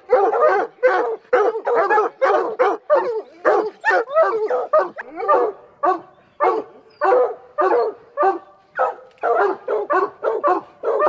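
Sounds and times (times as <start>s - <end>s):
hounds barking: 0.0s - 11.0s.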